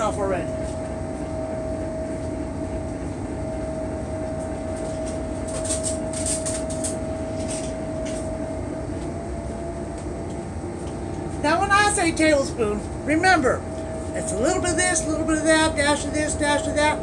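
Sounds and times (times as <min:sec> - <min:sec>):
boat engine drone: 0:00.0 - 0:17.0
constant hum: 0:00.0 - 0:17.0.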